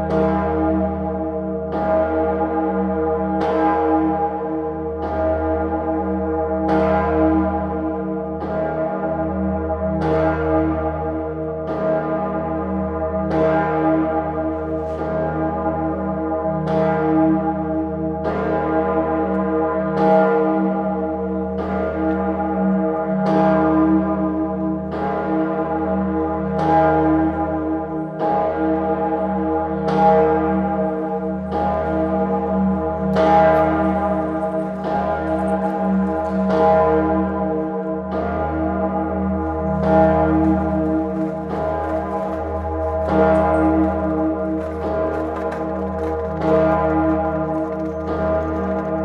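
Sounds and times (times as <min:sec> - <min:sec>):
church bell ringing: 0:00.0 - 0:49.0.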